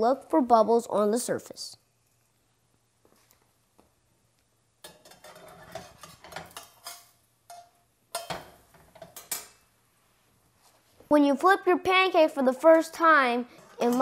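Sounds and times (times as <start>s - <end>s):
metal spatula scraping a pan: 4.8s - 9.6s, 13.5s - 14.0s.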